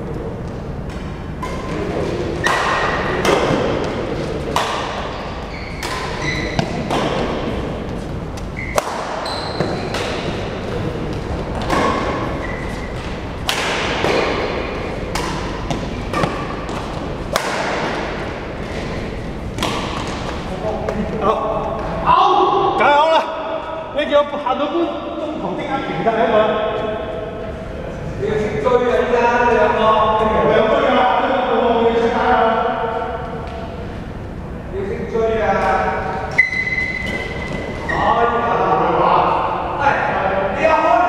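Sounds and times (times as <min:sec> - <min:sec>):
court shoes squeaking on floor: 0:04.6 - 0:10.6, 0:11.2 - 0:13.4, 0:14.0 - 0:17.2, 0:36.3 - 0:38.2
badminton racket hitting shuttlecock: 0:13.0 - 0:18.5.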